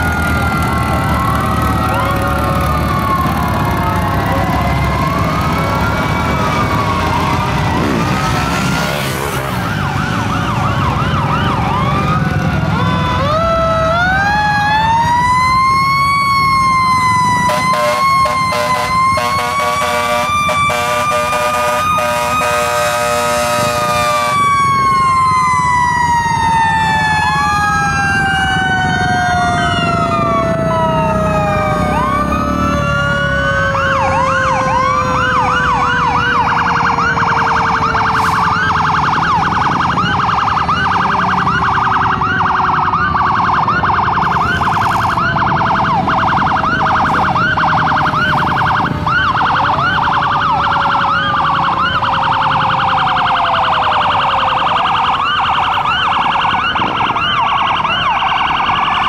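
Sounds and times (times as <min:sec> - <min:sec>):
fast siren yelp: 0:00.0 - 0:59.0
fire truck sirens wailing: 0:00.0 - 0:59.0
rapid pulsing siren: 0:00.0 - 0:59.0.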